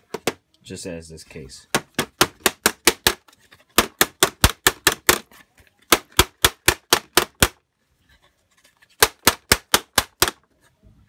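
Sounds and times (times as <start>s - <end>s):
knocking on hard plastic case: 0.1s - 0.4s, 1.7s - 3.2s.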